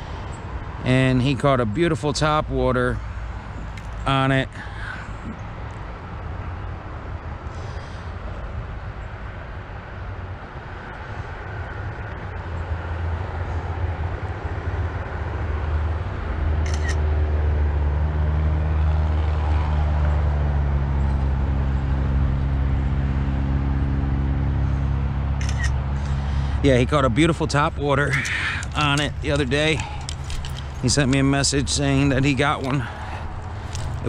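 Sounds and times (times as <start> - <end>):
vehicle engine running: 16.6 - 34.0.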